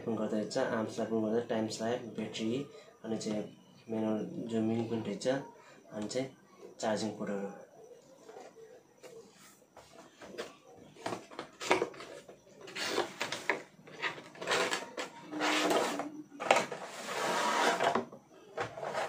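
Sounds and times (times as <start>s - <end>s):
cardboard scraping rubs: 16.8s - 18.0s.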